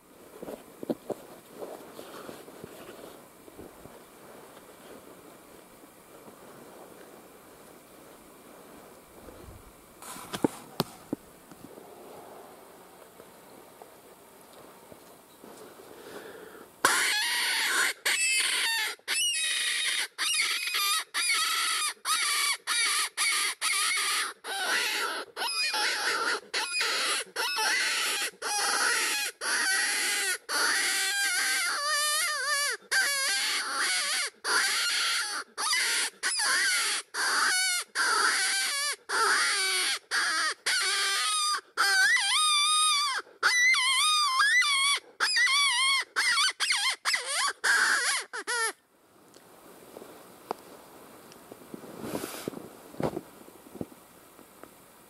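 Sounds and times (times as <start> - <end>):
predator call high cries: 16.8 - 48.8.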